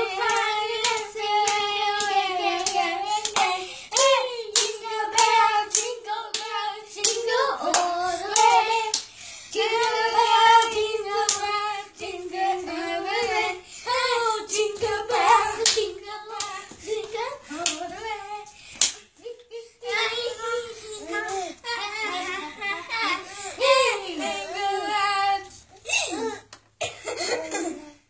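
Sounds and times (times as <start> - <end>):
children singing a jingle: 0.0 - 18.6, 19.2 - 25.6
hand claps: 0.2 - 9.1, 14.8 - 18.0, 18.8 - 19.1.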